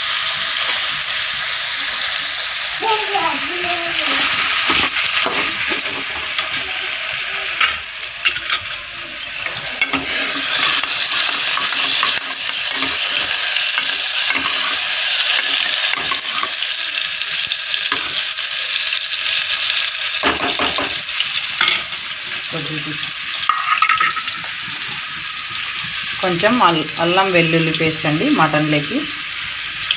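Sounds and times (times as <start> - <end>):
chicken sizzling in oil: 0.0 - 29.9
ladle scraping metal pan: 9.4 - 14.8.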